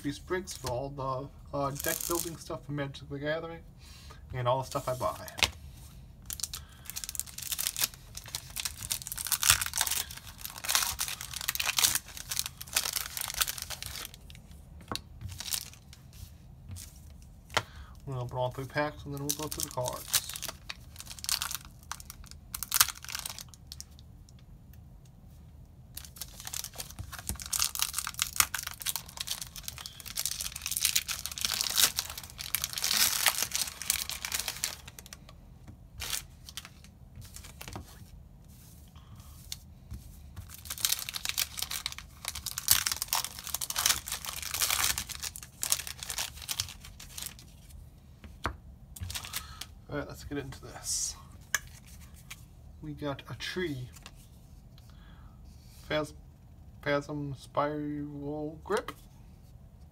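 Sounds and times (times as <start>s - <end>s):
foil wrappers tearing and crinkling: 1.7s - 2.5s, 6.3s - 14.4s, 15.2s - 15.9s, 18.6s - 23.6s, 26.0s - 35.2s, 36.0s - 37.8s, 40.4s - 47.7s, 49.0s - 49.7s.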